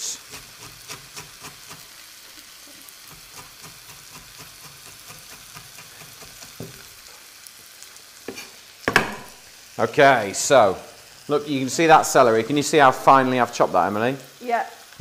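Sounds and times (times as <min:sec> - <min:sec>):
vegetables sizzling in a pan: 0:00.0 - 0:15.0
knife chopping on wooden board: 0:03.1 - 0:06.9, 0:08.3 - 0:09.4.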